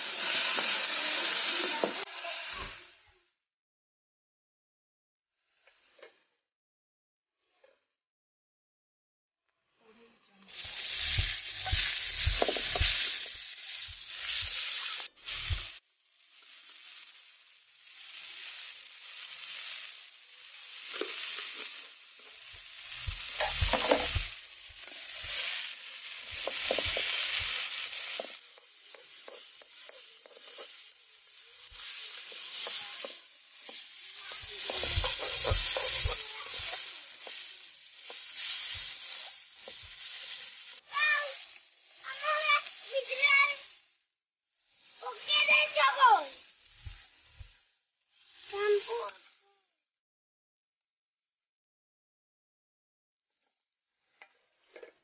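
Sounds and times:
metal spatula scraping a pan: 0:00.0 - 0:02.5, 0:20.7 - 0:43.3
greens sizzling in a pan: 0:00.0 - 0:03.4, 0:05.4 - 0:06.4, 0:09.6 - 0:49.8, 0:53.4 - 0:55.0.

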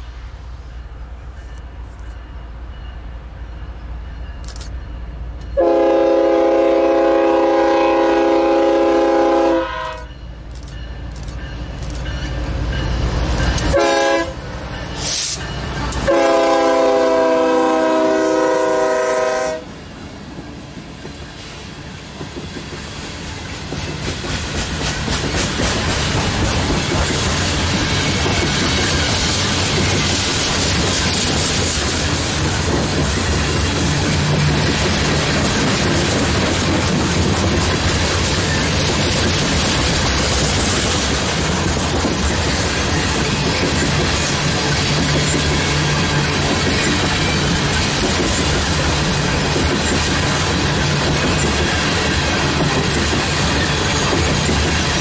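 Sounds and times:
train rumbling past: 0:00.0 - 0:55.0
locomotive air horn blasts: 0:05.6 - 0:10.1, 0:13.7 - 0:14.4, 0:16.0 - 0:19.7.

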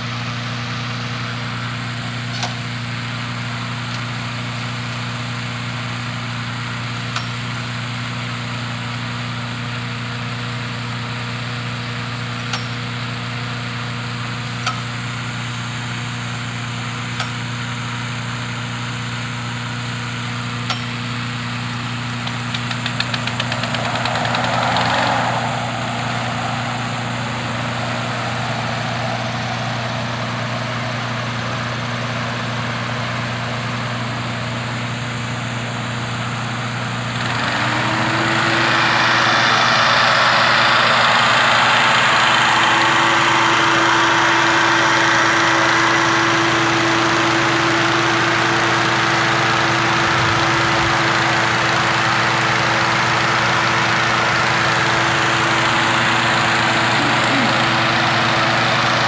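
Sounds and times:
small petrol engine running: 0:00.0 - 0:59.0
fan rushing air: 0:20.5 - 0:59.0.

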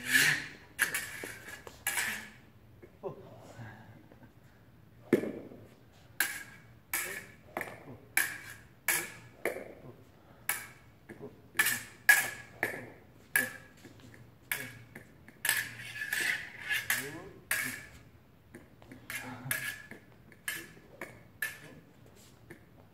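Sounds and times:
fencing blades clinking: 0:00.0 - 0:02.4, 0:06.2 - 0:09.8, 0:10.4 - 0:10.9, 0:11.6 - 0:18.1, 0:18.8 - 0:22.6.

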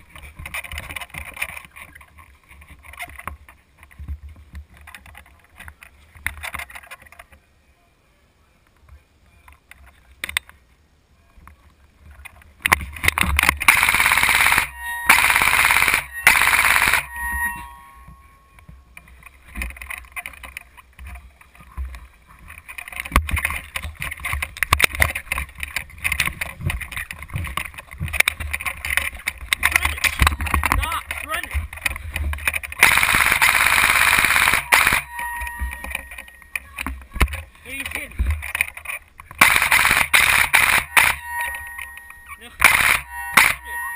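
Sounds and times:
airsoft rifle bursts: 0:13.6 - 0:17.1, 0:32.8 - 0:35.2, 0:39.4 - 0:41.2, 0:42.5 - 0:43.7.

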